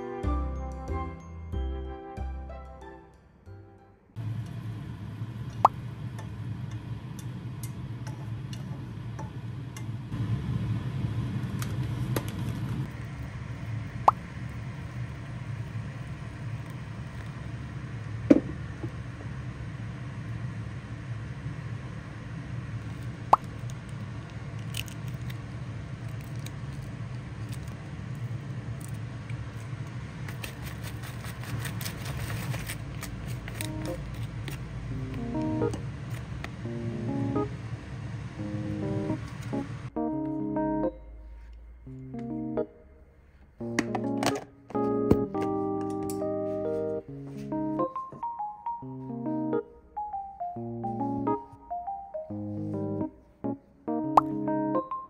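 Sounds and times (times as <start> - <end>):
steady low hum: 4.1 - 48.1.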